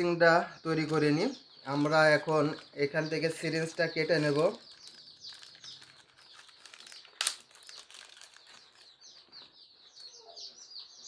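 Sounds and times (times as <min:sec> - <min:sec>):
chicks peeping: 0:00.0 - 0:11.0
plastic packet crinkling: 0:03.2 - 0:09.6
plastic ripping: 0:03.5 - 0:09.4.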